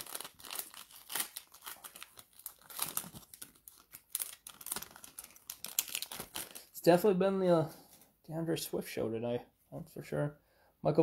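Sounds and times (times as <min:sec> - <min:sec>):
foil wrapper crinkling and tearing: 0:00.0 - 0:06.8.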